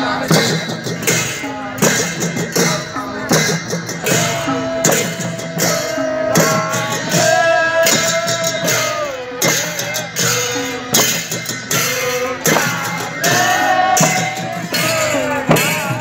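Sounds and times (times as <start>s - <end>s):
steady drum beat: 0.0s - 16.0s
folk dance music: 2.7s - 16.0s.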